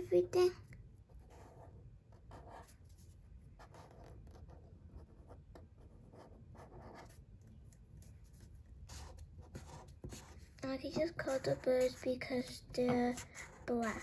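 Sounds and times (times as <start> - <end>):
marker scratching on paper: 1.1 - 7.3, 8.0 - 14.0.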